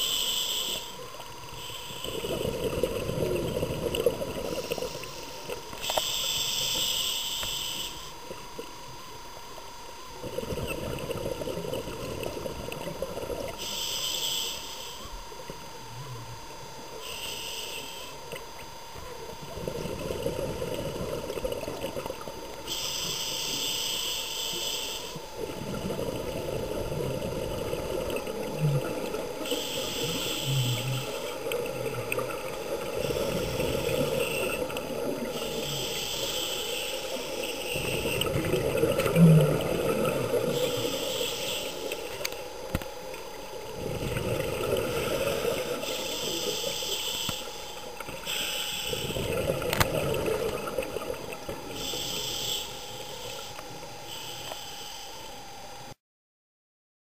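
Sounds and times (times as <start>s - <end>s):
bubbles rushing out: 43.8s - 45.6s
diver breathing through regulator: 51.7s - 55.1s.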